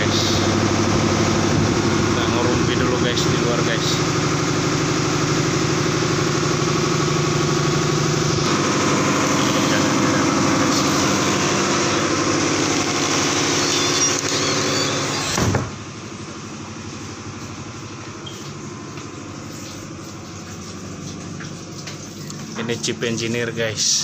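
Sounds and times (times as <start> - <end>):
muffled engine hum: 0.0 - 13.4
diesel engine running: 0.0 - 24.0.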